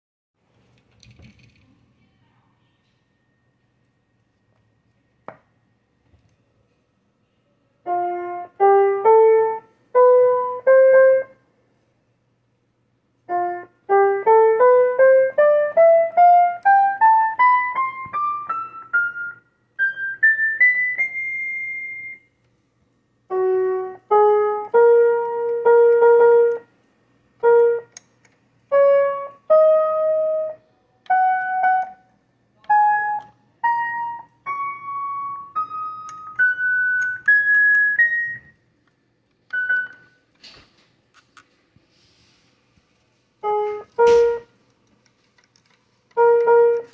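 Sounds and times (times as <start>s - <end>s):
keyboard notes: 7.8s - 11.5s, 13.2s - 22.4s, 23.2s - 38.7s, 39.3s - 40.3s, 43.4s - 44.6s, 45.5s - 46.9s
click: 27.9s - 28.4s.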